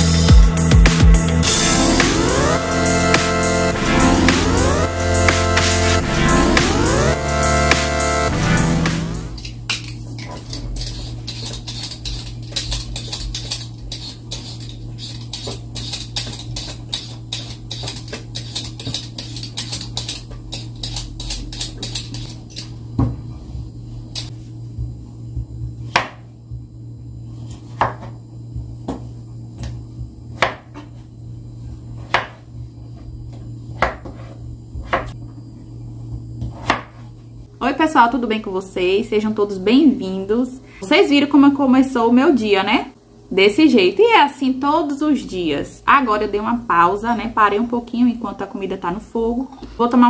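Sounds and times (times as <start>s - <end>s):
low steady hum: 1.3s - 50.0s
potatoes being peeled by hand: 9.3s - 22.7s
knife cutting on wooden board: 10.2s - 22.6s.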